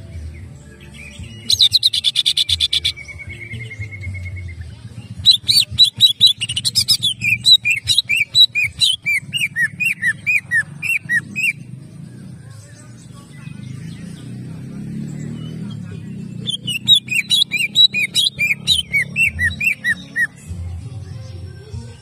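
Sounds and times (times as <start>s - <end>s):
bird singing sharp notes: 13.2s - 20.4s.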